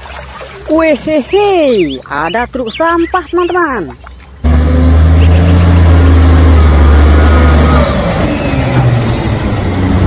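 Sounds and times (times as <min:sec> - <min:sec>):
garbage truck diesel engine: 0:04.4 - 0:10.0.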